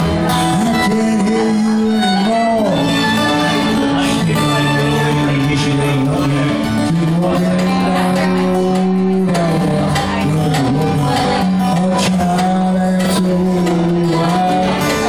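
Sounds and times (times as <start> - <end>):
fiddle: 0.0 - 9.0
strummed acoustic guitar: 0.0 - 15.0
man singing long held notes: 0.1 - 15.0.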